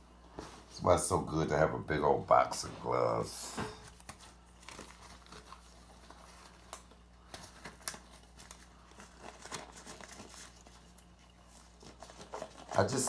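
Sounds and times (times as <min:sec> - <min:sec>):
low electrical hum: 0:00.0 - 0:13.0
glove rustling and snapping: 0:03.8 - 0:13.0.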